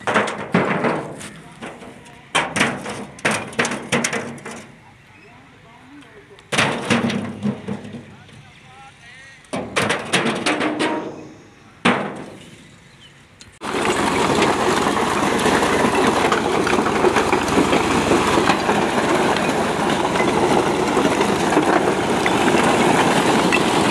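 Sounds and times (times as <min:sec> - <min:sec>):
constant clatter of load: 0:00.0 - 0:05.1, 0:05.8 - 0:12.8, 0:13.4 - 0:23.9
vehicle engine running: 0:13.6 - 0:23.9.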